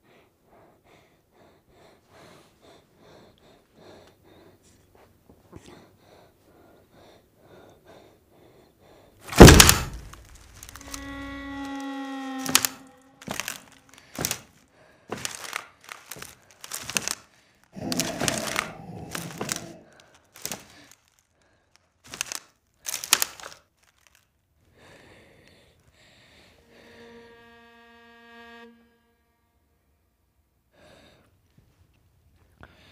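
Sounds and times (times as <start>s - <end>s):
heavy thuds and knocks: 9.3s - 11.7s
loud bang: 9.3s - 14.0s
creaking tone: 9.3s - 14.6s
scraping: 9.3s - 21.0s.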